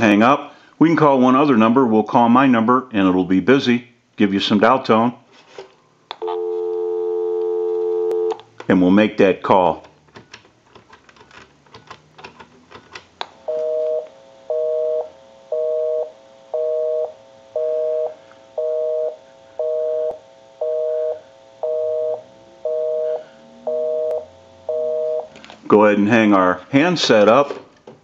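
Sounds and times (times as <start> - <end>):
telephone busy signal: 6.2 - 8.4, 13.5 - 25.3.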